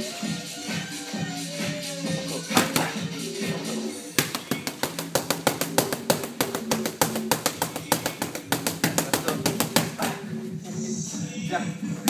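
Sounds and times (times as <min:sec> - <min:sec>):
background music: 0:00.0 - 0:12.0
punches smacking focus mitts: 0:02.5 - 0:03.1, 0:04.2 - 0:10.3.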